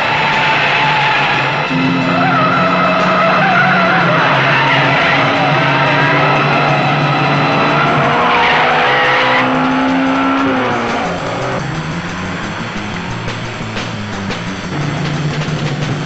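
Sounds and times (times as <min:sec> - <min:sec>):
tyres squealing: 0:00.0 - 0:11.6
car engines running hard: 0:00.0 - 0:16.0.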